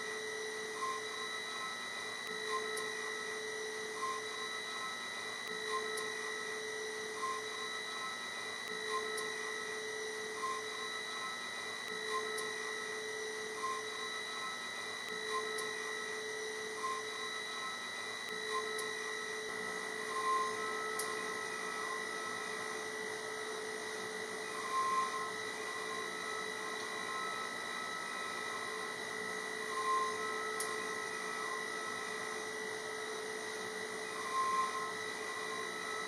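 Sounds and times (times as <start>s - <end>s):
milling spindle whining: 12.2s - 36.0s.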